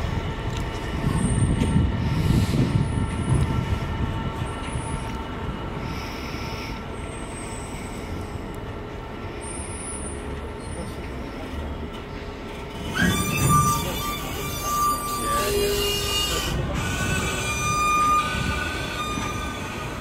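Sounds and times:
train wheels rumbling on rails: 0.0 - 20.0
high-pitched wheel squeals: 12.8 - 20.0.

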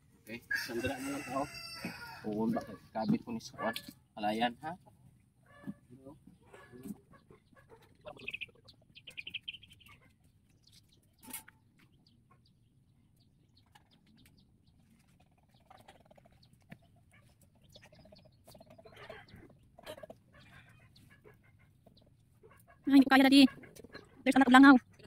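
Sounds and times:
chickens clucking: 0.3 - 25.0
faint bird chirps: 5.5 - 22.1.

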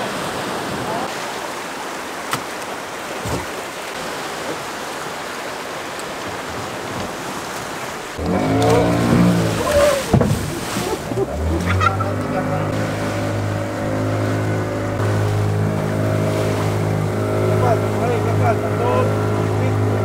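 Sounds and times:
surf washing in shallows: 0.0 - 20.0
outboard motor running: 7.9 - 20.0.

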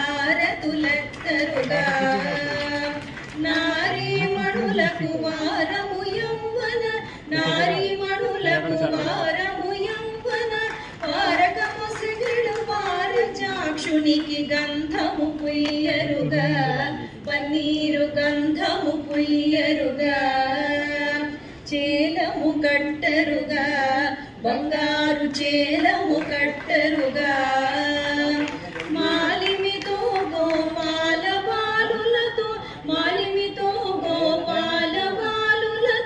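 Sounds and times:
woman singing: 0.0 - 36.0.

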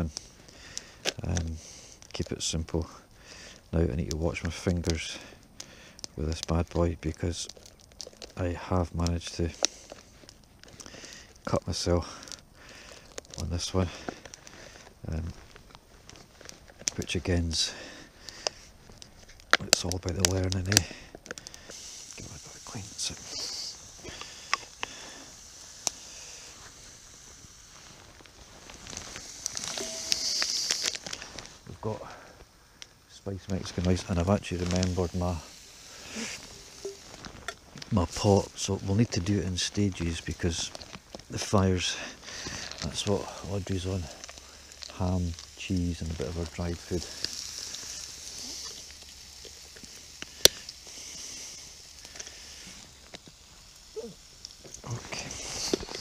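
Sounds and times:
wood fire crackling: 0.0 - 56.0
meat sizzling in a frying pan: 4.1 - 31.6, 33.6 - 56.0
sharp crack: 28.1 - 31.6, 42.2 - 56.0
faint ticks: 47.0 - 51.0, 51.6 - 53.4.

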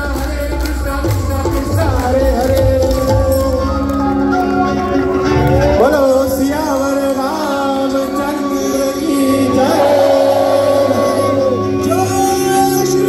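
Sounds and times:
person singing devotional song: 0.0 - 4.6
acoustic and electric guitars: 2.5 - 13.0.

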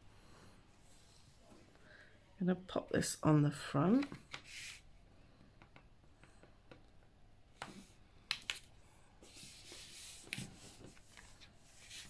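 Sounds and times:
paper rubbing: 9.2 - 12.0.

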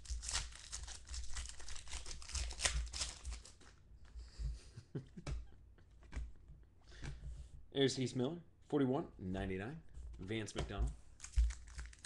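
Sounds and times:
foil wrapper tearing and crinkling: 0.0 - 3.8, 11.2 - 12.0.

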